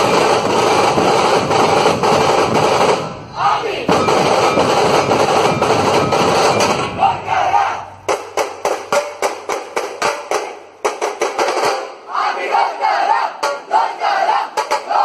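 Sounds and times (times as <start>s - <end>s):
barrel drums beaten with sticks: 0.0s - 12.1s, 13.4s - 15.0s
group shout: 3.3s - 4.0s, 6.8s - 8.0s, 12.1s - 15.0s.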